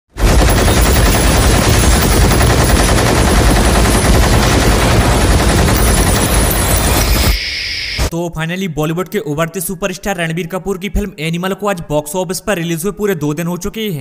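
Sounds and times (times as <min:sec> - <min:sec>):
rotary machine gun firing: 0:00.2 - 0:07.3.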